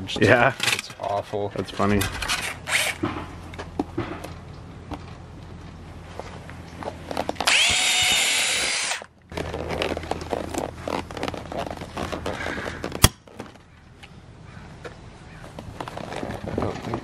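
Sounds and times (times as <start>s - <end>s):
hand rivet gun clicking and scraping: 7.1s - 9.1s
electric drill boring through plastic: 7.4s - 9.1s.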